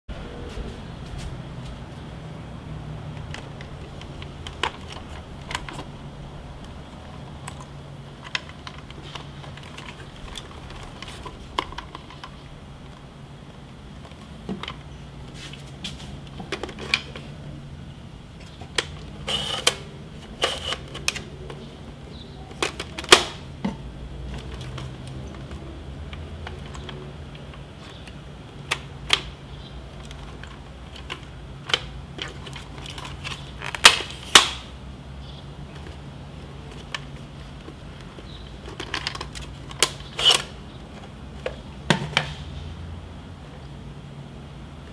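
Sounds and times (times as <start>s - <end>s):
plastic camera clicks and snaps: 22.5s - 23.4s, 31.0s - 34.7s.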